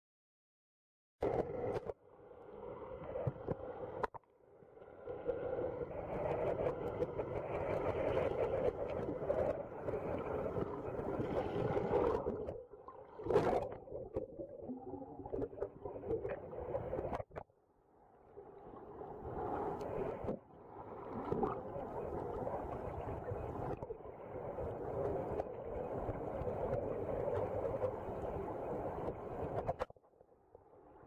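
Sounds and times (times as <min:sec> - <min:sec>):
muffled underwater drone: 0:01.2 - 0:17.4.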